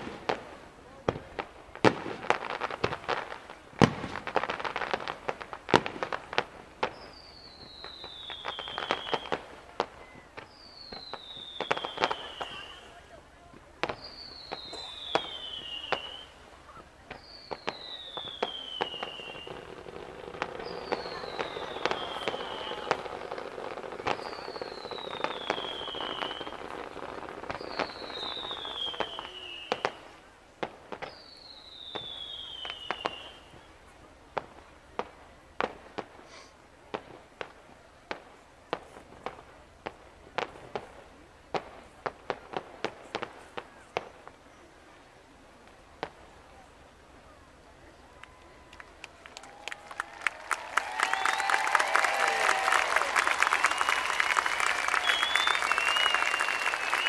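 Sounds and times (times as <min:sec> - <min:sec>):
fireworks bangs and crackles: 0:00.0 - 0:57.0
falling firework whistle: 0:06.8 - 0:13.0, 0:13.9 - 0:16.4, 0:17.1 - 0:30.1, 0:30.9 - 0:33.7, 0:49.3 - 0:57.0.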